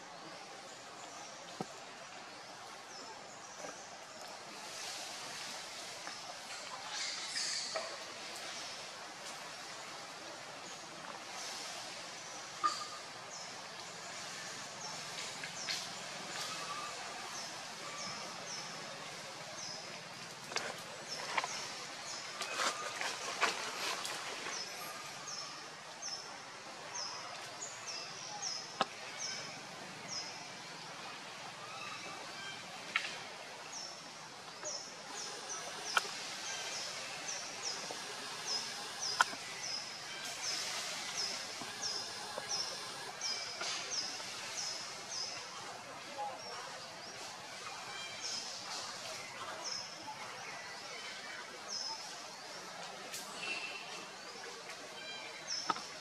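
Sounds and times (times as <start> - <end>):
faint outdoor background noise: 0.0 - 56.0
forest background noise: 0.0 - 56.0.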